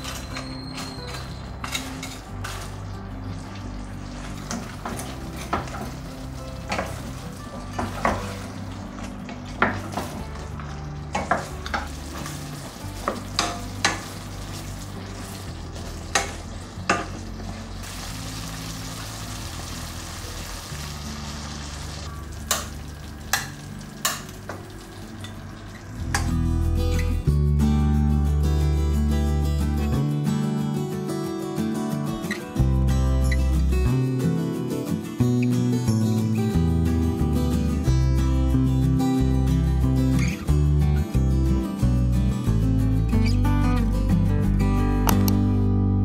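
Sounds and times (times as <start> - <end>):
sauce sizzling in a pan: 2.9 - 26.1.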